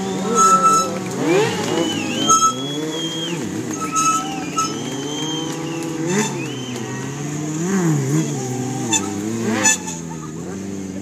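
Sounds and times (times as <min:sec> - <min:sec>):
motorcycle engines revving: 0:00.0 - 0:11.0.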